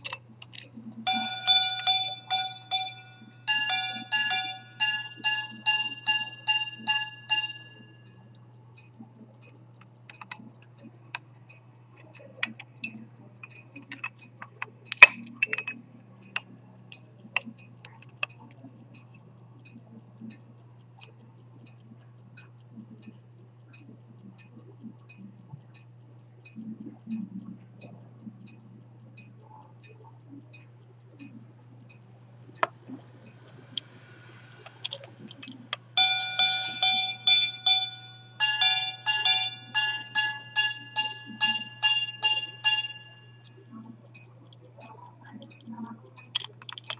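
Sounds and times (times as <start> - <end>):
watch ticking: 0.0 - 46.9
pocket watch gongs striking: 1.1 - 8.0, 34.8 - 43.6
watch case clicks: 46.4 - 46.9.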